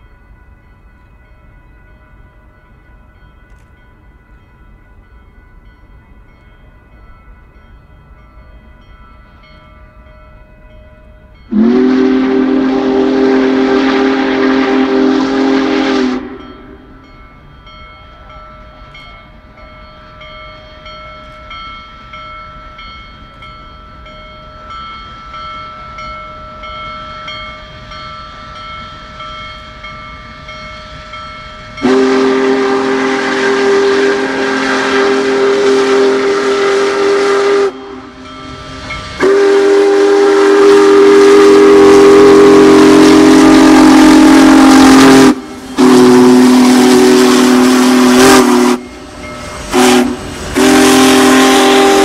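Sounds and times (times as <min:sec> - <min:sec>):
steam whistle blasts: 0:11.5 - 0:17.0, 0:30.8 - 0:52.0.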